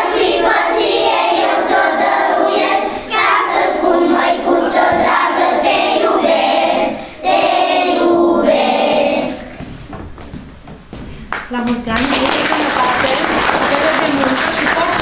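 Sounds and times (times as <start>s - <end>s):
children singing in chorus: 0.0s - 9.6s.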